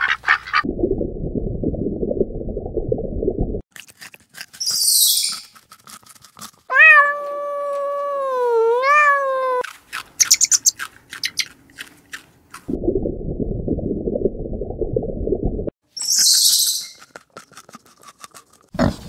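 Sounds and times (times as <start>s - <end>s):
cat meowing: 6.7s - 9.6s.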